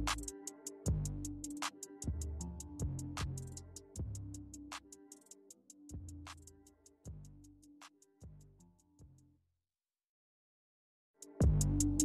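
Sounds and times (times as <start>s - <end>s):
electronic music with beat: 0.0s - 8.6s, 11.2s - 12.0s.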